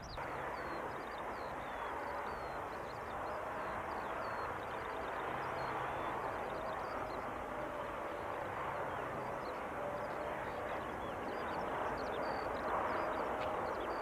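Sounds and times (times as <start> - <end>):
distant jet engines humming: 0.0 - 14.0.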